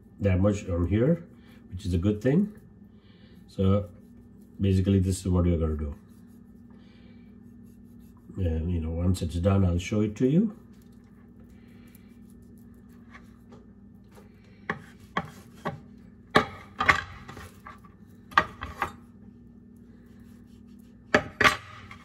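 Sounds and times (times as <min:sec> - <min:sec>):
meat rubbing on wood: 0:01.8 - 0:13.6, 0:14.2 - 0:16.0, 0:20.0 - 0:21.2.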